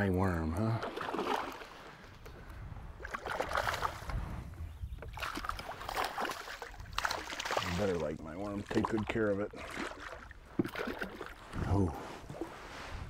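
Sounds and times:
fish thrashing splashing water: 0:00.8 - 0:01.7, 0:05.1 - 0:07.8.

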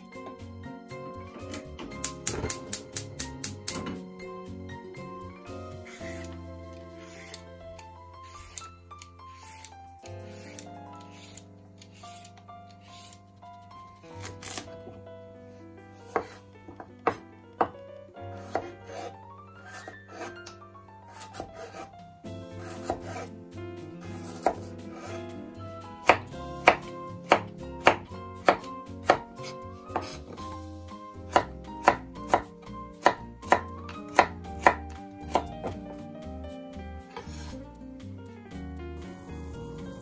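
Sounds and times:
knife cutting on wooden board: 0:05.7 - 0:07.5, 0:08.2 - 0:13.2, 0:14.0 - 0:14.8, 0:16.0 - 0:17.7, 0:18.4 - 0:20.5, 0:21.1 - 0:21.9, 0:22.5 - 0:23.3, 0:24.1 - 0:25.2, 0:26.0 - 0:30.5, 0:31.3 - 0:35.9, 0:37.1 - 0:37.6.

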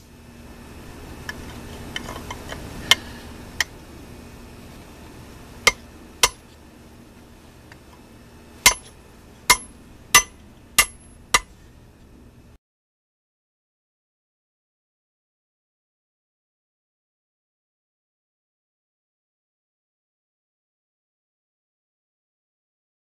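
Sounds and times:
low steady hum: 0:00.0 - 0:12.6
hammer striking steel: 0:05.7 - 0:06.4, 0:08.6 - 0:11.5.

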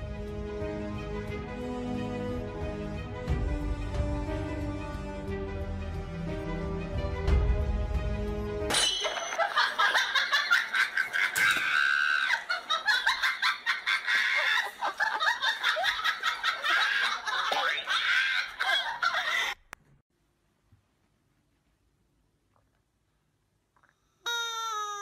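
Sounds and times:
high-pitched laughter: 0:09.2 - 0:19.7, 0:24.3 - 0:25.0.

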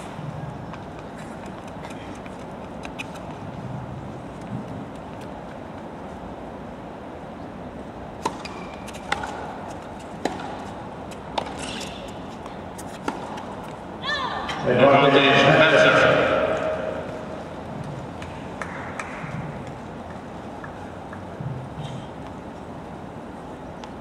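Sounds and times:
crowd background noise: 0:00.0 - 0:24.0
tennis ball racket hits: 0:08.2 - 0:13.5.

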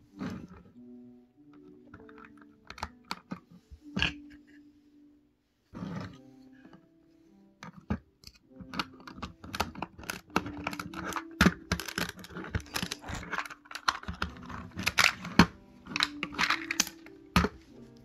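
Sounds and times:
plastic bricks clicking together: 0:01.9 - 0:03.4, 0:07.6 - 0:17.6.

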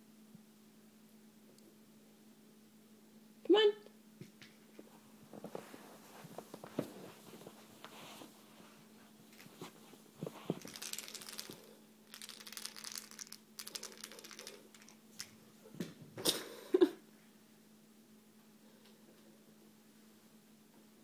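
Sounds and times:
toy mouse rattling: 0:09.3 - 0:09.6, 0:10.4 - 0:15.4
toy clattering when thrown: 0:10.3 - 0:15.4.

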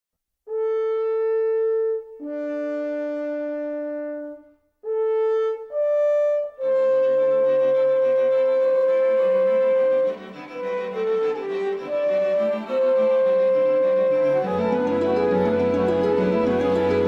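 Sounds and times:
fuller music accompaniment: 0:00.5 - 0:17.0
slow melody of long notes: 0:00.5 - 0:17.0.

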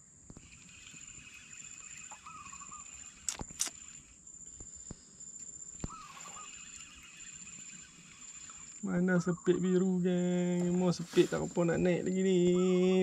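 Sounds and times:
insects chirring: 0:00.0 - 0:13.0
sharp clicks: 0:00.3 - 0:04.7
short wavering call: 0:01.2 - 0:03.2, 0:05.8 - 0:08.6.

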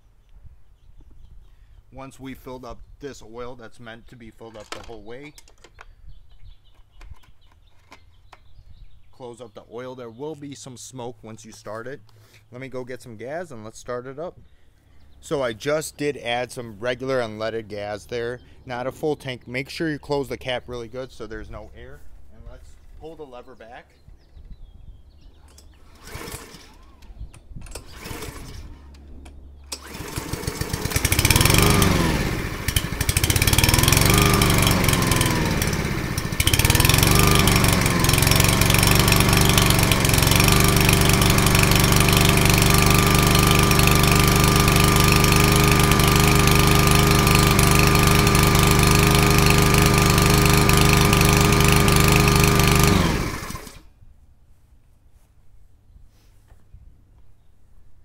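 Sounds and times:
lawn mower engine running: 0:25.5 - 0:53.9.

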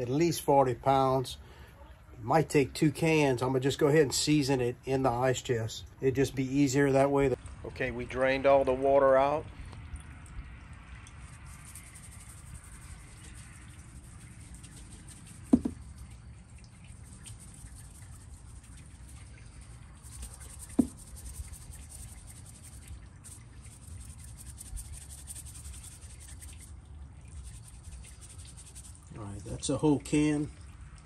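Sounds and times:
wet rubbing of fish: 0:10.1 - 0:29.8
seasoning ticking from a can: 0:10.7 - 0:29.1
hollow knocks: 0:15.5 - 0:15.9, 0:20.7 - 0:21.0.

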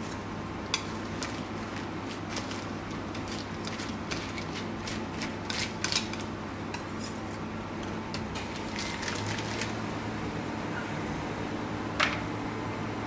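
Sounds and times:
steady low hum: 0:00.0 - 0:13.0
knife scraping: 0:02.4 - 0:07.4
plastic bag crinkling: 0:08.5 - 0:09.8.

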